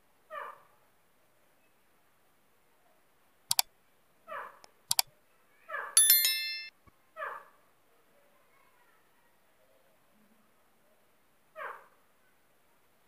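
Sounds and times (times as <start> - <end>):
sharp double clicks: 4.6 - 5.1
bell-like ding: 6.0 - 6.7.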